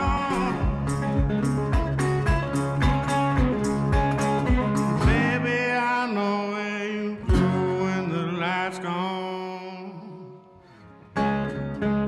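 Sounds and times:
guitar background music: 0.0 - 12.0.

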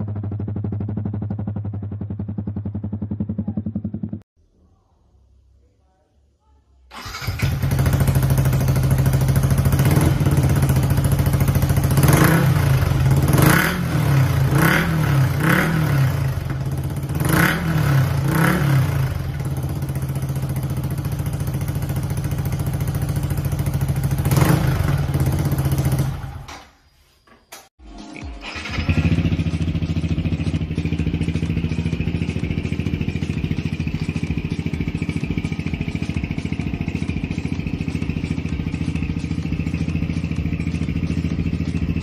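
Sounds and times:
motorcycle engine idling: 0.0 - 4.2, 6.9 - 26.5, 28.5 - 42.0
engine throttle blips: 28.4 - 42.0.

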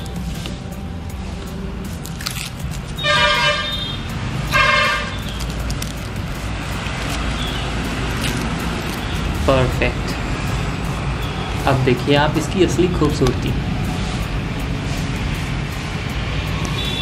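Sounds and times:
vehicle horn toots: 3.0 - 5.4, 16.8 - 17.0.

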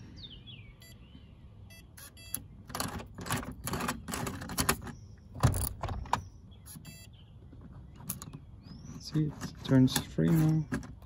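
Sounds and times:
electronic lock beeps: 0.8 - 1.0, 1.7 - 2.5, 4.7 - 7.2
lock mechanism clicking and rattling: 2.4 - 6.3, 7.6 - 11.0
lock bolt clunk: 2.7 - 6.3.

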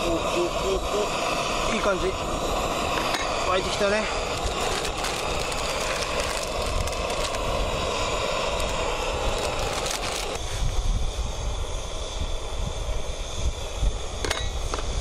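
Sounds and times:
gas stove hissing: 0.0 - 15.0.

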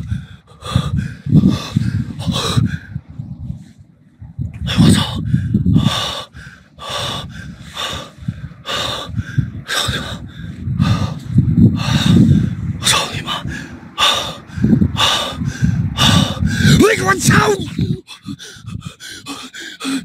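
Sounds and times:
man panting: 0.0 - 3.0, 4.6 - 20.0
microphone rumbling: 0.0 - 19.0.

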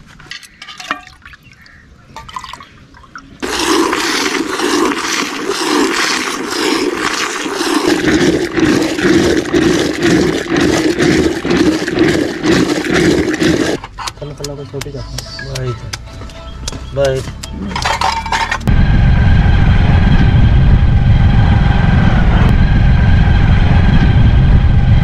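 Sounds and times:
milk squirting into metal pail: 3.4 - 13.8
milk churned in clay pot: 3.4 - 14.5.

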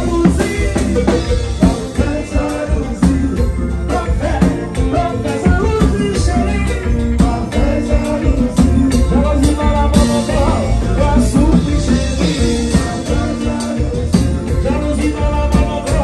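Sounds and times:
bass line: 0.0 - 16.0
conga drums: 0.0 - 16.0
drum kit: 0.0 - 16.0
person singing: 0.0 - 16.0.

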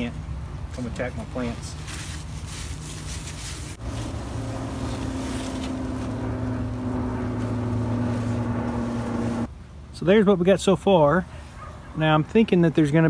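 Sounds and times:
steady motor hum: 3.8 - 9.5.

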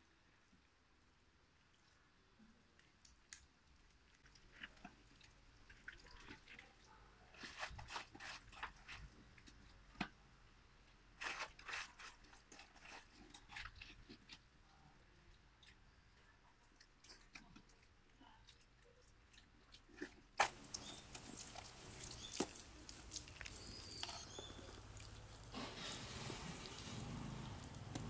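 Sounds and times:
wet mud squelching: 19.3 - 28.0.

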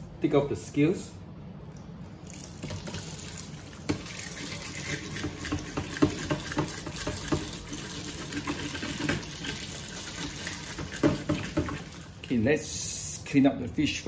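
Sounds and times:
tap water running into a tub: 2.2 - 12.4.

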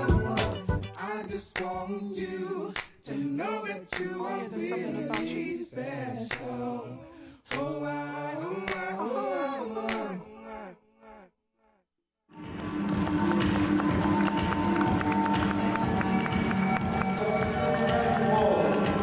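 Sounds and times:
a cappella singing: 0.0 - 11.3
finger snaps: 7.5 - 7.7.

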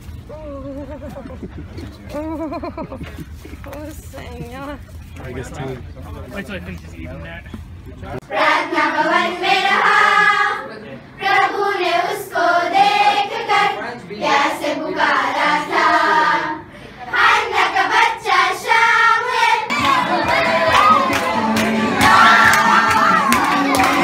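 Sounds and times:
girls singing in chorus: 8.3 - 24.0.

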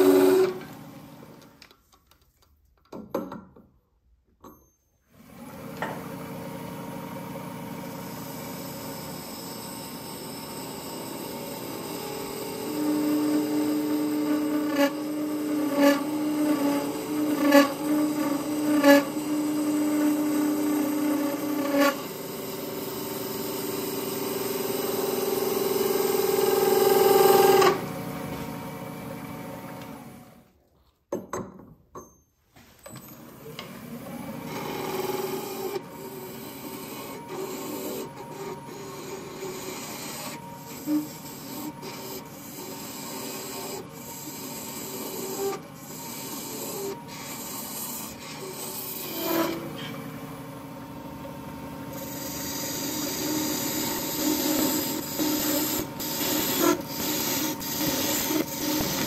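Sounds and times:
tool scraping brass on lathe: 11.6 - 27.8, 34.5 - 50.0, 51.9 - 59.0.

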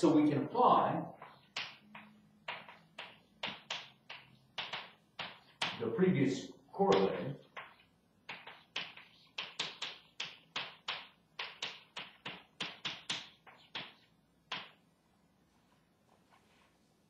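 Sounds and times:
chalk tapping on blackboard: 1.1 - 5.8, 6.9 - 14.8.

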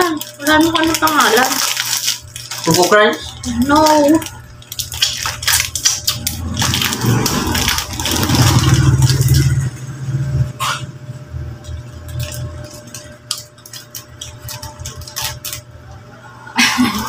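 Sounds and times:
plastic snack packet crinkling: 0.0 - 9.7, 11.6 - 15.7
low rumble: 5.6 - 13.1.

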